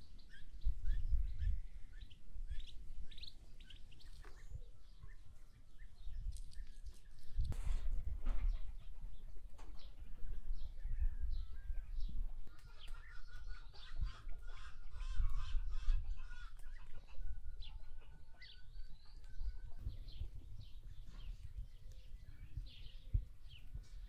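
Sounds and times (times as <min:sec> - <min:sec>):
small birds chirping: 0:00.0 - 0:24.0
chickens clucking: 0:08.3 - 0:22.6.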